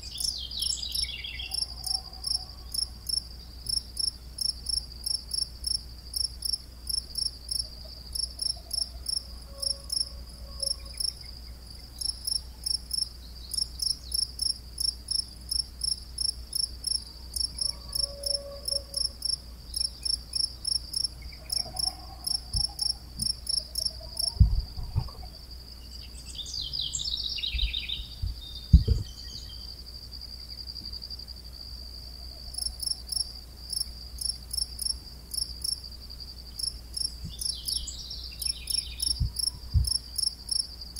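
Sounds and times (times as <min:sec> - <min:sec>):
crickets chirping: 0:00.0 - 0:40.9
high insect trill: 0:00.0 - 0:40.9
low thumps: 0:27.6 - 0:29.2.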